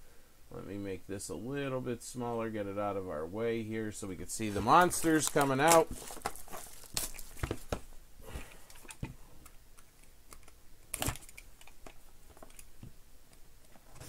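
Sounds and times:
hands handling cardboard box: 0:04.4 - 0:09.6.

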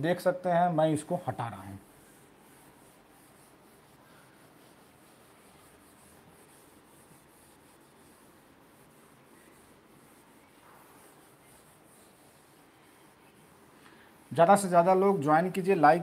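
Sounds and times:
duster rubbing whiteboard: 0:00.0 - 0:16.0.

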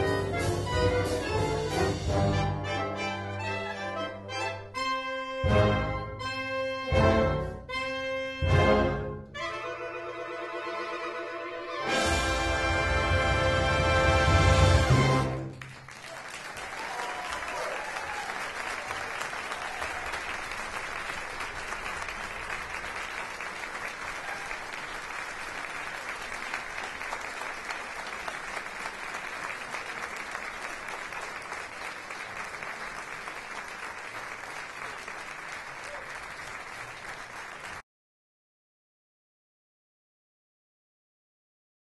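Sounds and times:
audience applauding: 0:14.2 - 0:37.8.

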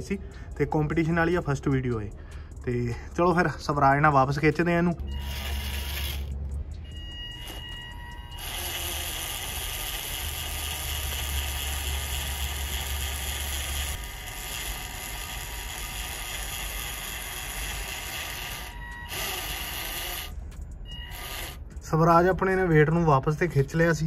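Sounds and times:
toy tractor motor whirring: 0:05.1 - 0:21.7.

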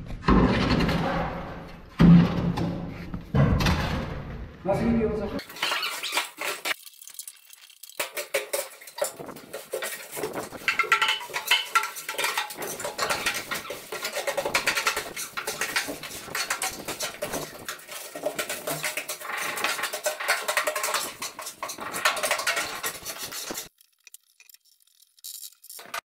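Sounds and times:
gravel sliding and rattling: 0:05.4 - 0:26.0
shovels scraping truck bed: 0:08.8 - 0:23.7.

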